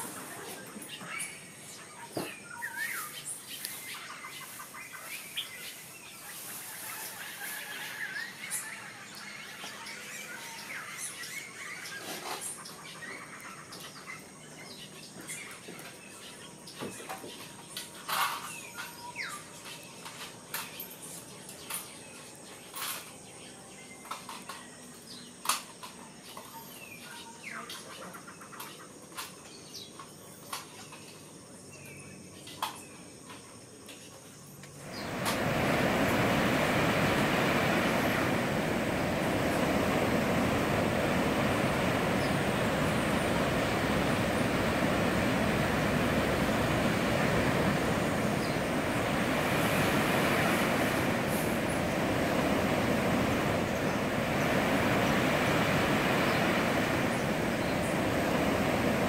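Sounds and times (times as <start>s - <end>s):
birds chirping: 0.0s - 25.4s, 34.4s - 59.0s
steady high hiss: 29.4s - 59.0s
high insect whine: 33.0s - 59.0s.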